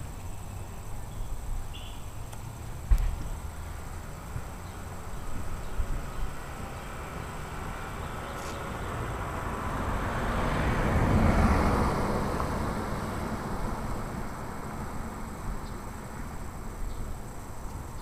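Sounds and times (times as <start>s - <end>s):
car passing by: 2.5s - 16.9s.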